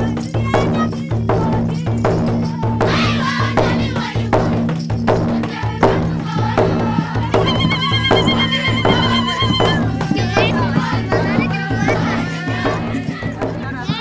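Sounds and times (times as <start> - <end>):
percussion beat: 0.0 - 14.0
person singing: 5.8 - 14.0.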